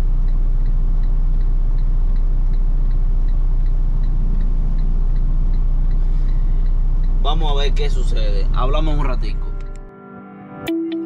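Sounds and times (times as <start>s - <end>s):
light regular tick: 0.0s - 8.0s
truck diesel engine idling: 0.0s - 9.6s.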